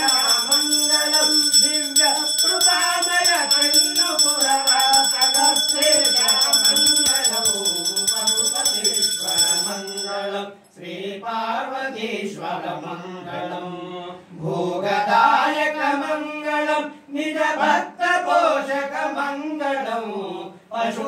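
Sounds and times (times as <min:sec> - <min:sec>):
bell ringing: 0:00.0 - 0:10.4
voices chanting a hymn: 0:00.0 - 0:21.0.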